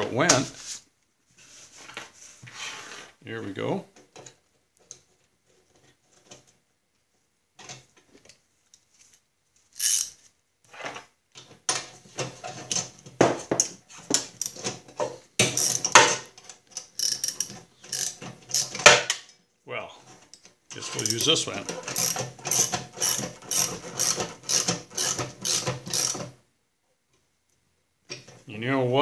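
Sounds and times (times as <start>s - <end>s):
wrench and metal parts clinking: 20.8s - 26.2s.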